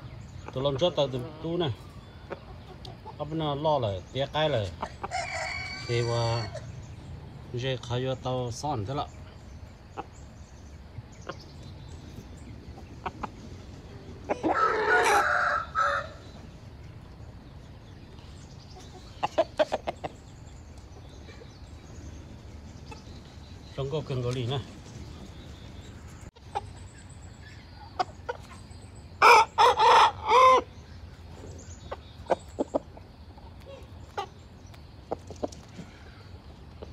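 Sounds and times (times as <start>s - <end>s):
rooster calling: 4.8s - 6.8s, 14.2s - 16.4s, 29.2s - 30.8s.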